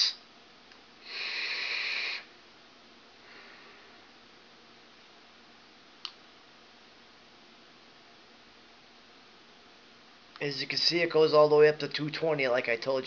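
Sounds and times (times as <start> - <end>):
person exhaling: 1.0 - 2.3, 3.2 - 4.1
vape airflow hiss: 1.0 - 2.3.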